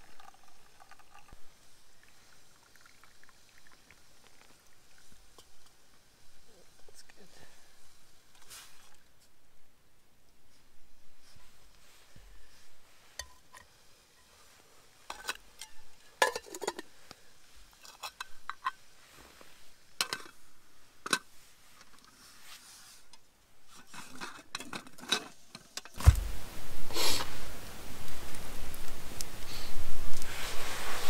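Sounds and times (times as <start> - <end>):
low thump: 26.0 - 26.5
loud rustling burst: 26.0 - 27.9.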